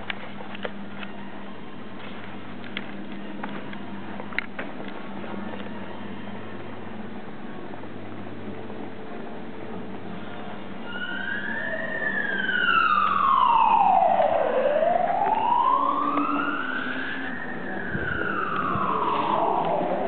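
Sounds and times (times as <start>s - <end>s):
emergency siren wailing: 10.7s - 20.0s.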